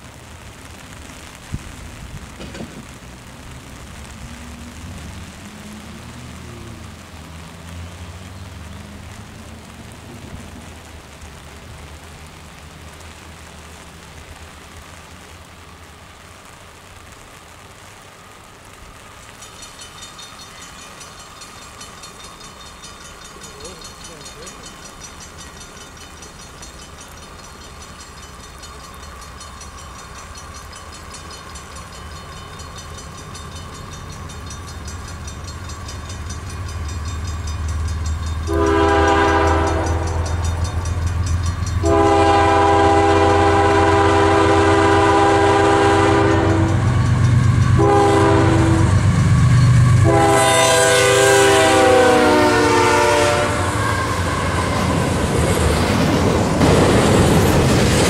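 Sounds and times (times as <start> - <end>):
diesel locomotive engine rumble: 0.0 - 58.0
freight cars rolling: 0.0 - 58.0
locomotive air horn: 38.5 - 40.3, 41.8 - 46.9, 47.8 - 49.0, 49.8 - 55.1.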